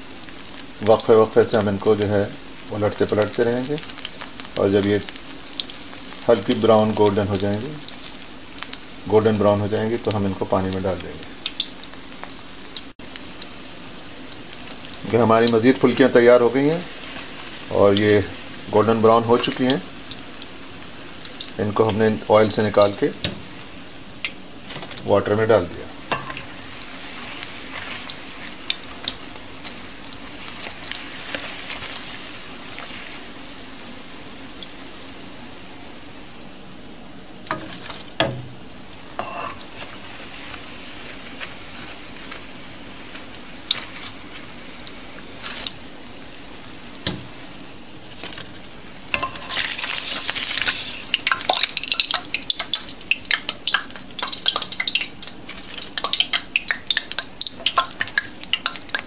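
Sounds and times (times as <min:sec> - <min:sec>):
fritters sizzling in hot oil: 0:00.0 - 0:59.0
spoon scraping against pan: 0:26.0 - 0:29.8, 0:39.2 - 0:40.6, 0:48.4 - 0:51.4.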